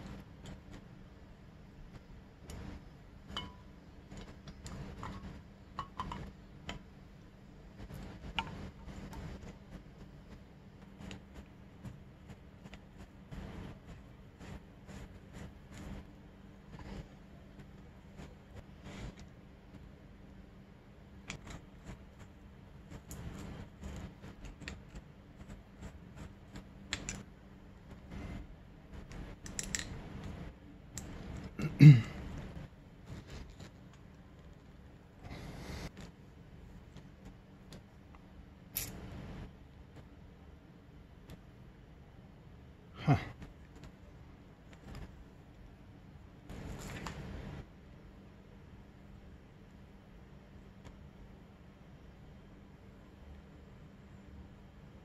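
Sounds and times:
metallic clicks and clinks: 0:29.4 - 0:29.9.

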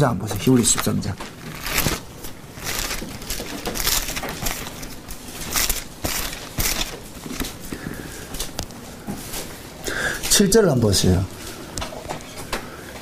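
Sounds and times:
thin pages turning: 0:00.3 - 0:07.7.

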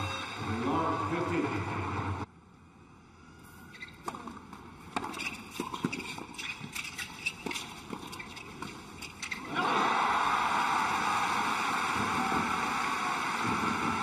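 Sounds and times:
tennis ball hits and bounces: 0:04.0 - 0:06.2.

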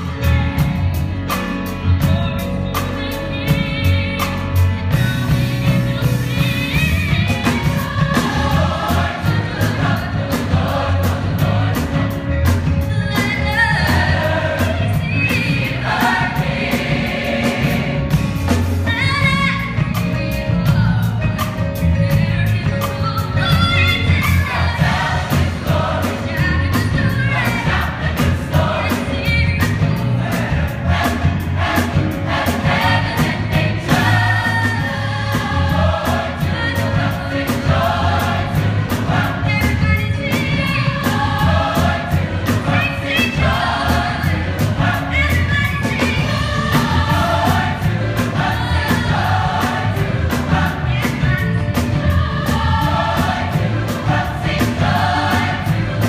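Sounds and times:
instrumental backing with beat: 0:00.0 - 0:56.0
choir singing: 0:05.7 - 0:12.3, 0:13.1 - 0:18.7, 0:24.1 - 0:56.0.

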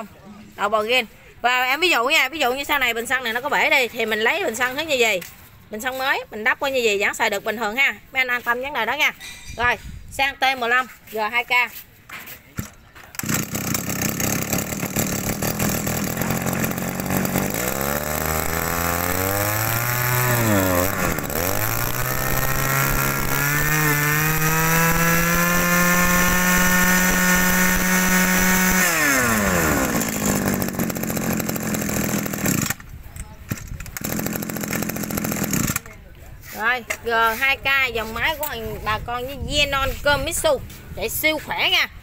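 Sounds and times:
brush-cutter engine idling and revving: 0:02.0 - 0:07.6, 0:12.6 - 0:38.6.

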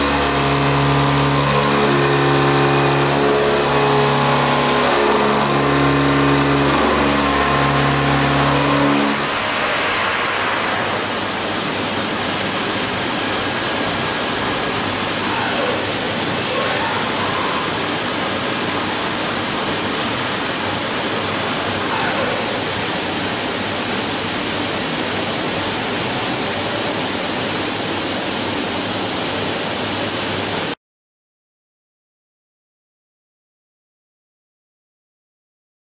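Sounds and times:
machine rushing noise: 0:00.0 - 0:26.2
milling machine cutting hum: 0:00.0 - 0:28.2.

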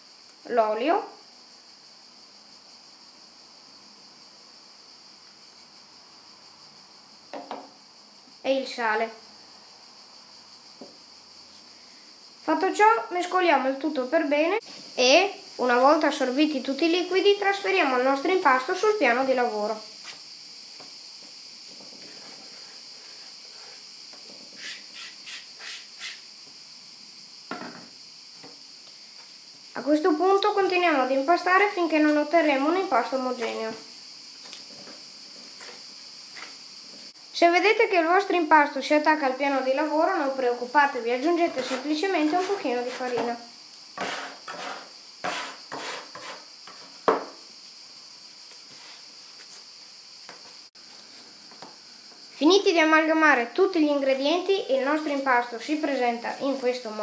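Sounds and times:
high-pitched background hiss: 0:00.0 - 0:57.0
dull knock: 0:07.3 - 0:07.7, 0:47.1 - 0:47.4
metal scraper scraping wooden board: 0:41.5 - 0:43.3, 0:44.0 - 0:46.8.

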